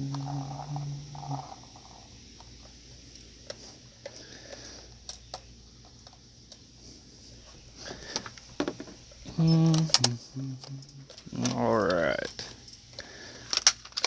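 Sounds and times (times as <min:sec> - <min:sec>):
clicks of plastic toy handling: 0:11.1 - 0:14.0.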